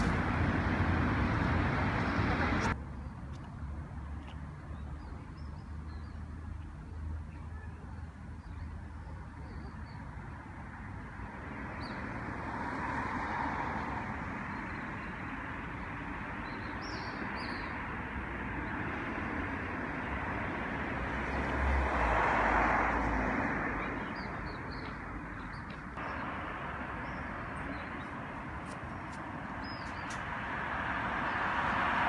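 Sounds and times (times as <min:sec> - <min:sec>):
traffic noise: 0:00.0 - 0:32.0
bird chirps: 0:27.0 - 0:30.2.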